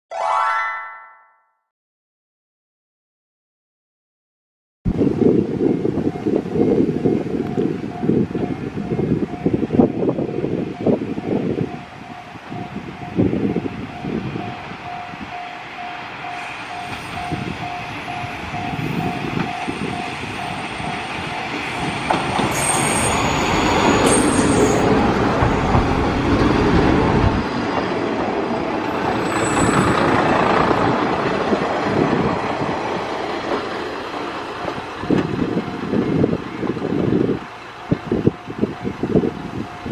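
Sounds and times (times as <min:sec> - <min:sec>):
train engine and wheel rumble: 0:04.9 - 0:39.9
wheel squeals: 0:16.3 - 0:26.0, 0:28.9 - 0:30.4.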